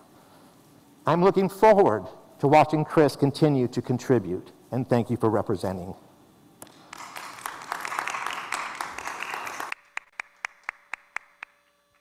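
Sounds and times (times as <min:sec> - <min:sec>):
audience applauding: 0:06.6 - 0:11.6
evenly spaced claps: 0:06.6 - 0:11.6.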